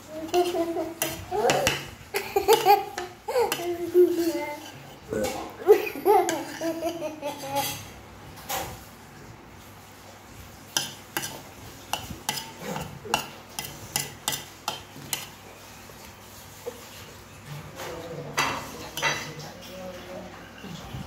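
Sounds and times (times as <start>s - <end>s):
spoon scraping a plate: 10.7s - 16.0s.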